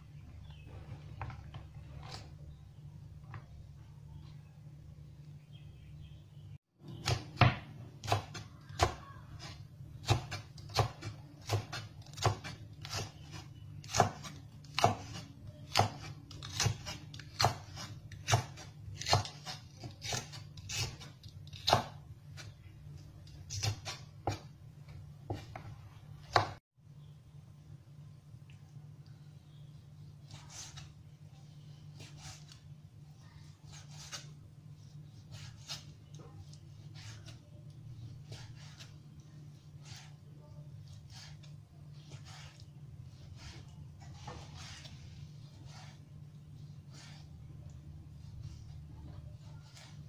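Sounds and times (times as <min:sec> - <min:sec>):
faint low hum: 0:00.0 - 0:50.0
knife chopping on wooden board: 0:06.9 - 0:22.5, 0:25.3 - 0:26.6.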